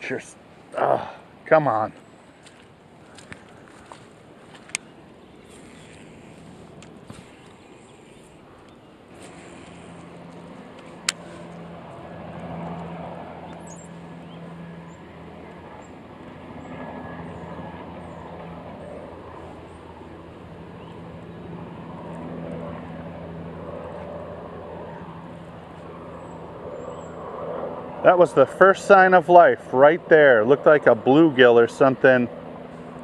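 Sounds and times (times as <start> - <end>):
distant traffic hum: 0.0 - 33.0.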